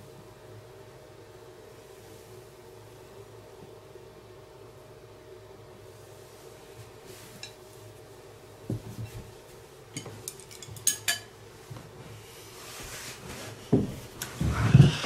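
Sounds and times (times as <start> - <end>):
tableware clinking: 10.0 - 11.3.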